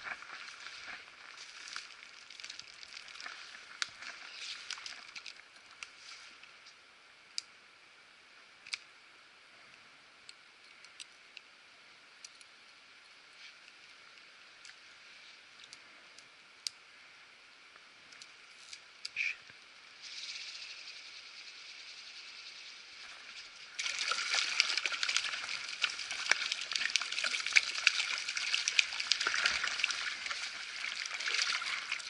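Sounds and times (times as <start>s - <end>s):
raindrops ticking on camera housing: 0.0s - 6.8s, 23.0s - 32.0s
steady faint hiss: 0.0s - 32.0s.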